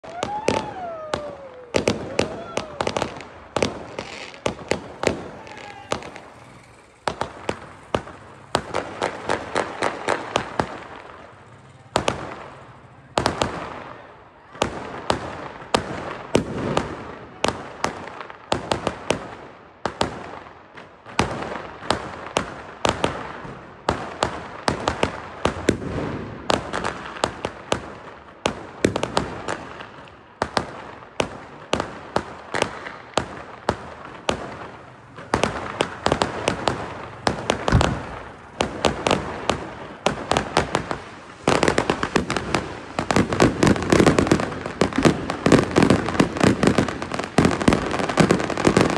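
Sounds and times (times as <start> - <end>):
sharp bangs and cracks: 0.0 - 48.9
crackling noise: 0.2 - 13.8.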